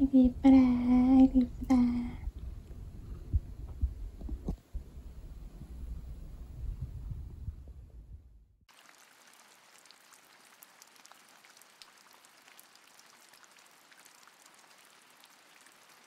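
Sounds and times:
cat purring: 0:00.0 - 0:07.9
rain pattering on window: 0:08.7 - 0:16.0.

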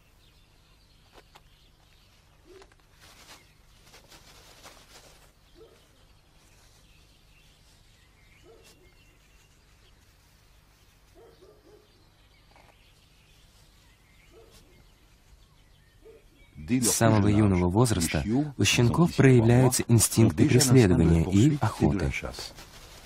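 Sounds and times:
birds calling and chirping: 0:00.0 - 0:23.0
rustling: 0:01.0 - 0:15.6, 0:22.0 - 0:23.0.

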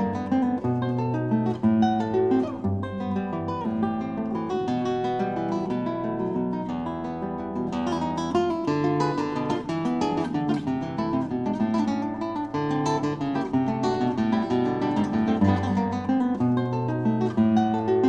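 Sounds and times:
acoustic guitar music: 0:00.0 - 0:18.0.

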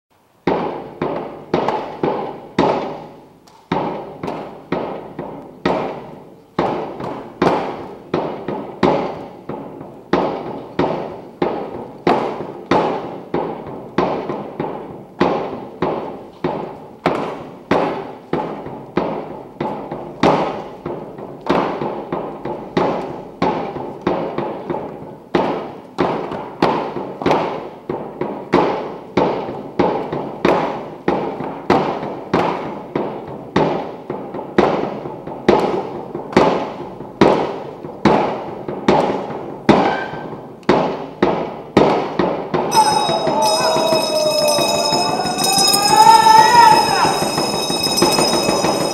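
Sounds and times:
frame drums struck in unison: 0:42.6 - 0:48.9.

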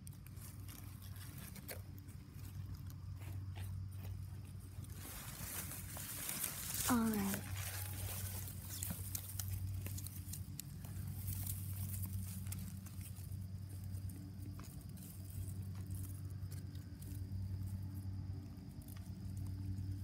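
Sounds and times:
steady low hum: 0:00.0 - 0:20.0
rustling against phone microphone: 0:04.1 - 0:15.7.

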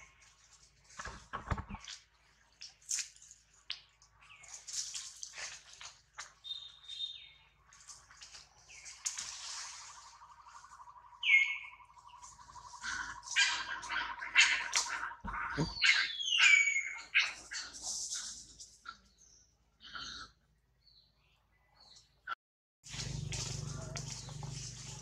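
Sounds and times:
animal chirps and squeaks: 0:11.2 - 0:19.0.

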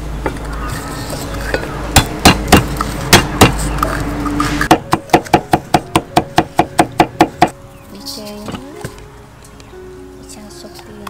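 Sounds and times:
cleaver chopping on wooden block: 0:02.0 - 0:03.8, 0:04.7 - 0:07.6.

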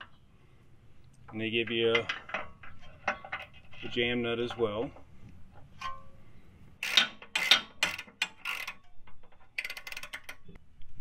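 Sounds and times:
ratchet wrench clicking: 0:06.8 - 0:10.4.

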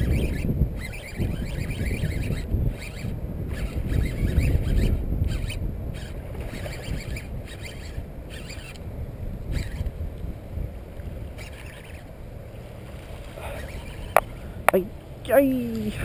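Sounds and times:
fishing reel cranking: 0:00.0 - 0:08.8, 0:09.5 - 0:09.9, 0:11.3 - 0:12.1, 0:13.4 - 0:14.3
wind buffeting microphone: 0:00.0 - 0:16.0.

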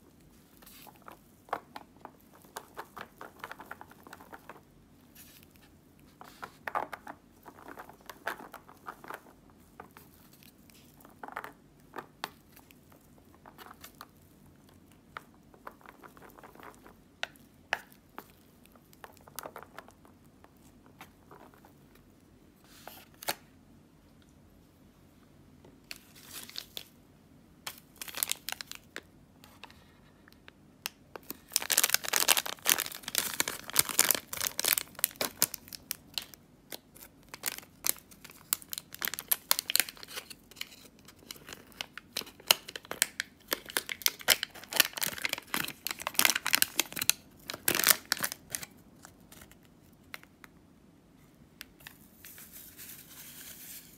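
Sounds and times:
plastic sachet crinkling and tearing: 0:27.7 - 0:28.9, 0:31.2 - 0:49.5.

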